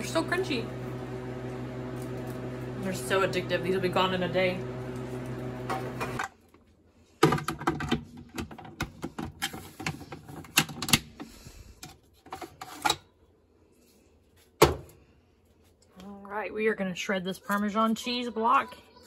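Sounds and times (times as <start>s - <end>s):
machine hum: 0.0s - 6.3s
plastic parts clicking and knocking: 7.2s - 13.0s.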